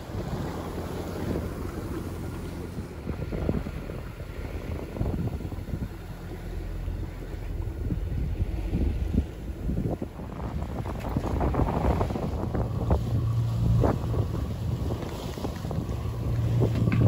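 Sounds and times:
water splashing against hull: 0.0 - 17.0
wind buffeting microphone: 0.0 - 17.0.

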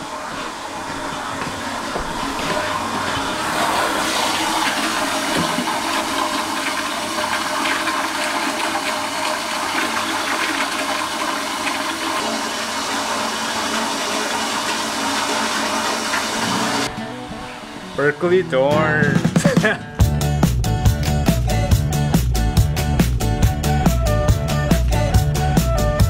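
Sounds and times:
toilet flushing: 0.0 - 18.4.

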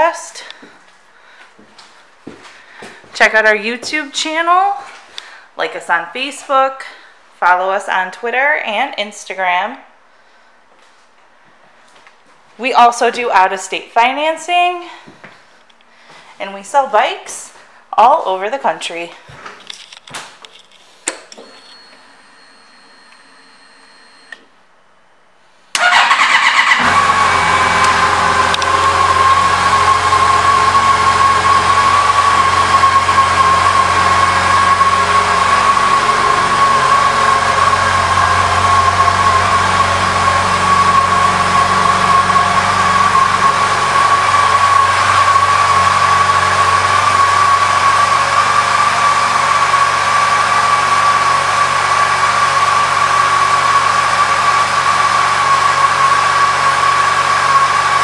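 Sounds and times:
motorcycle engine starting and idling: 25.8 - 58.0.

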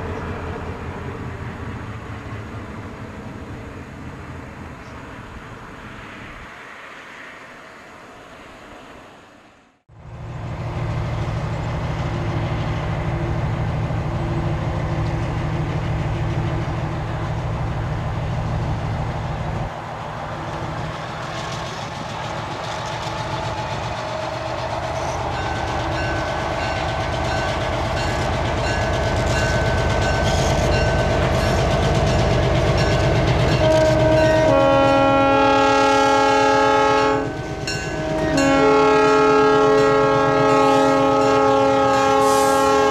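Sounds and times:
diesel locomotive engine running: 9.9 - 42.9
train wheels clicking over rail joints: 20.4 - 34.4
locomotive air horn chord: 33.5 - 42.9.

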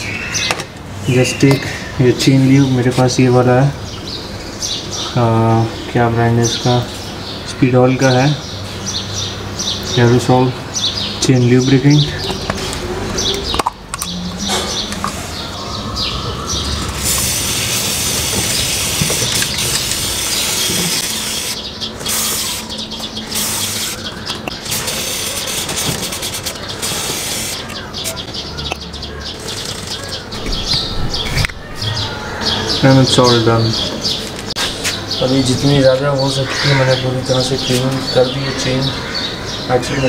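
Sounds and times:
birds chirping: 0.0 - 40.0
aerosol spray hissing: 17.0 - 24.0, 26.8 - 27.6.

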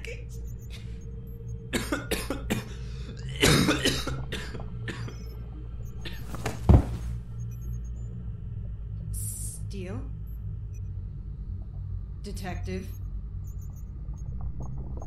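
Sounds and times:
low steady hum: 0.0 - 15.0
person coughing and choking: 1.7 - 5.2
heavy thump: 6.3 - 7.1.

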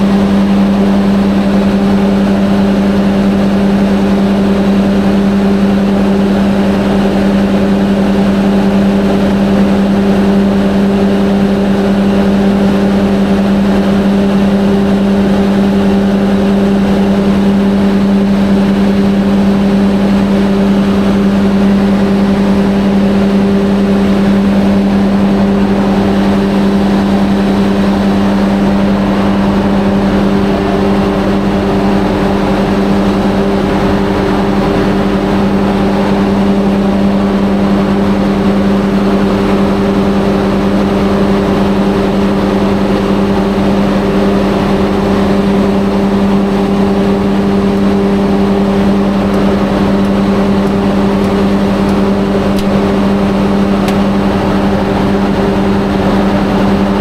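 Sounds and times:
diesel generator engine running: 0.0 - 57.0.

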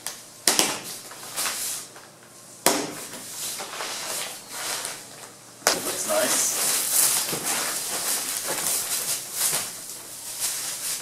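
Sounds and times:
plastic wrap rustling: 3.6 - 11.0.

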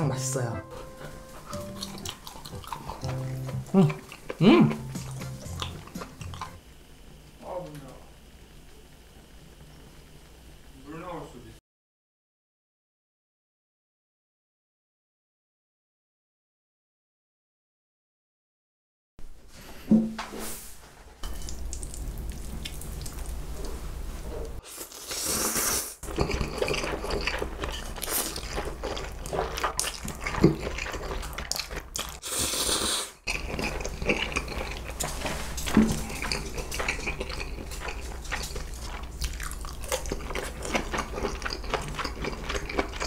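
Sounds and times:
chewing and mouth clicks: 1.0 - 6.6, 21.2 - 23.8, 26.0 - 43.0
noodle slurps: 24.7 - 28.8, 29.7 - 34.9.

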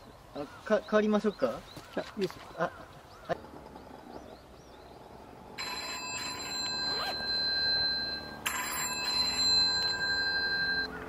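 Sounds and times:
phone ringtone: 5.6 - 11.0.

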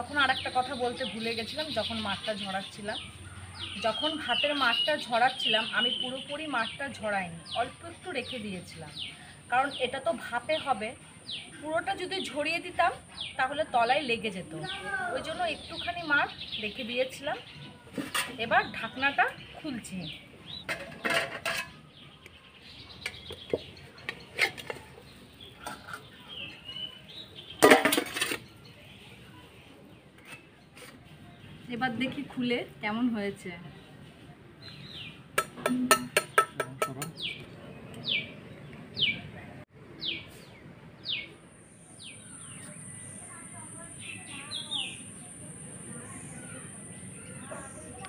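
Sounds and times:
small bird chirping: 18.6 - 27.6, 40.0 - 48.0
spatula knocking on metal pot: 35.4 - 37.2.

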